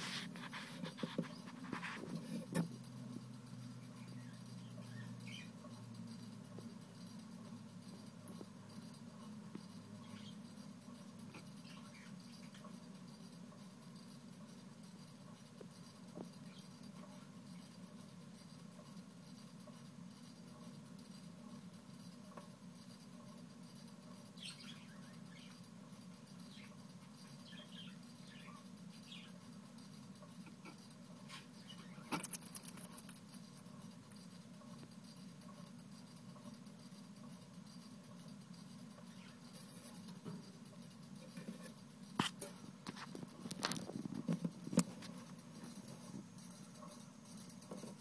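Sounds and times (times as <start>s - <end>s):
small clicks and ticks: 0.3s - 48.0s
lizard jaws crunching insects: 31.8s - 33.3s.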